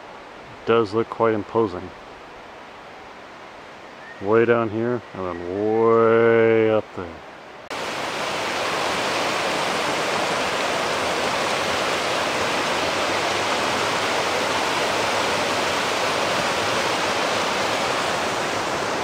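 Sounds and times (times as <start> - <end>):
stream rushing over boulders: 7.6 - 19.0.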